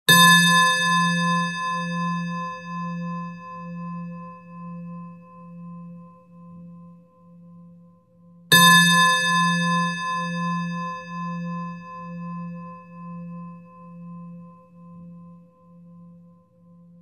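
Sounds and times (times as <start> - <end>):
singing bowl ringing: 0.1 - 17.0.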